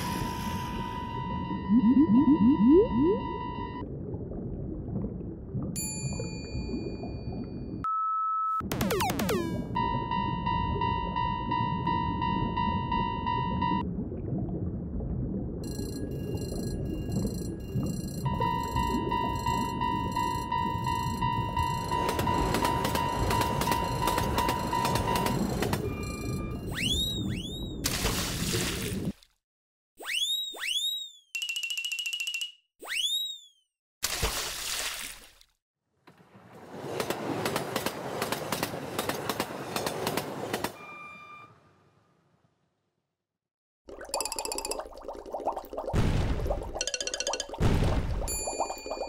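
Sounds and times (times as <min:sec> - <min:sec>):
train wheels clattering on rails: 0:36.9 - 0:40.8.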